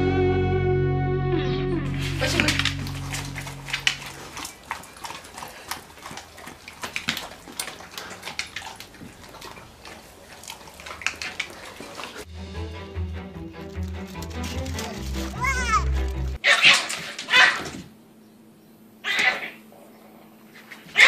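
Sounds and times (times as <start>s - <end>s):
dogs smacking and lapping food: 2.2s - 12.3s.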